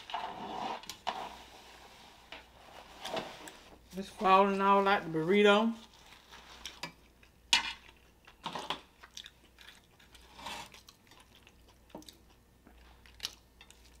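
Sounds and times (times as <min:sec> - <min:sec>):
soft chewing: 0:05.8 - 0:14.0
fork scraping in foil wrapper: 0:10.1 - 0:10.8.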